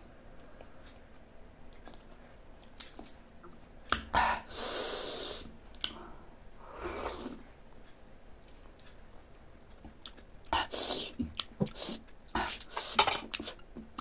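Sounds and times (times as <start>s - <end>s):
sucked-in air hiss: 4.0s - 7.6s, 10.5s - 13.2s.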